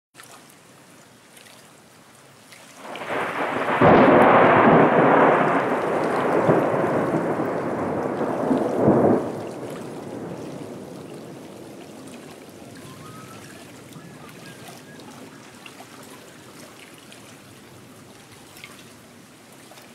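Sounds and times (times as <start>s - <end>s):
thunder rumbling: 2.8s - 18.0s.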